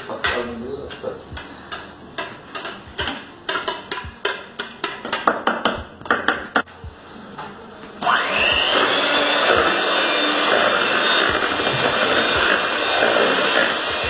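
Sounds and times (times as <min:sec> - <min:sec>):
electric hand mixer running: 0:08.0 - 0:14.0.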